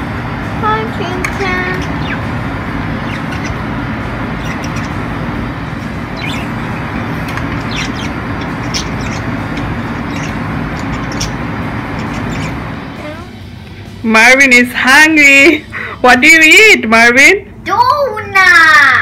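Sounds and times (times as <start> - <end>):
low mechanical hum: 0.0 - 19.0
bird chirps: 1.8 - 2.4, 3.0 - 3.7, 4.3 - 5.2, 6.0 - 12.7.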